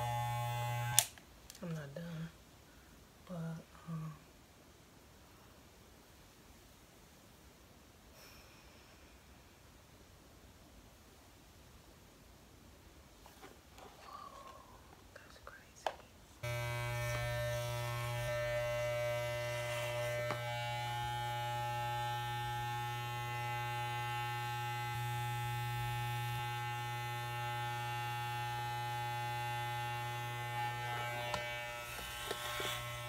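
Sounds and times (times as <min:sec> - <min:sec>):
hair clippers buzzing: 0:00.0 - 0:01.2, 0:16.4 - 0:33.0.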